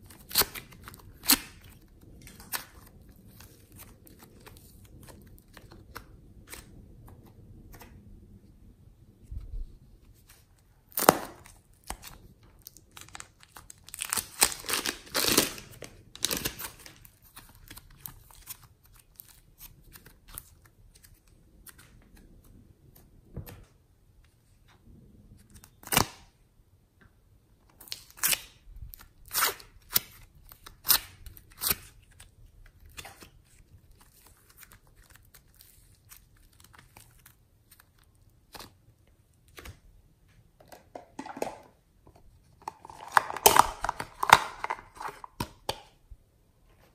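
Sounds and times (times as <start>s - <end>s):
plastic containers clicking: 40.6s - 41.8s, 42.6s - 45.9s
plastic bag crinkling: 42.6s - 45.4s.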